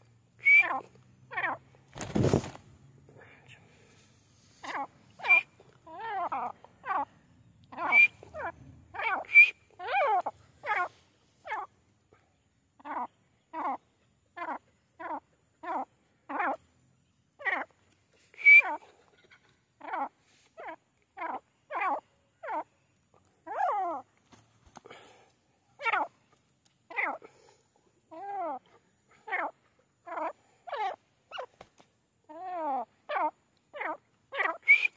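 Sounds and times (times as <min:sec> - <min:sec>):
francolin calling: 0:00.4 - 0:01.7, 0:04.6 - 0:11.8, 0:12.8 - 0:24.1, 0:26.9 - 0:27.3, 0:32.2 - 0:34.9.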